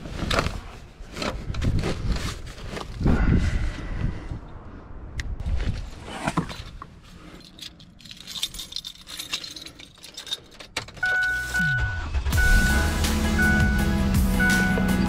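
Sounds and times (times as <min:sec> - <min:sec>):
keys jangling: 0:07.4 - 0:11.4
car engine starting and running: 0:10.6 - 0:15.0
car stereo music: 0:11.0 - 0:15.0
warning chime beeping: 0:11.0 - 0:15.0.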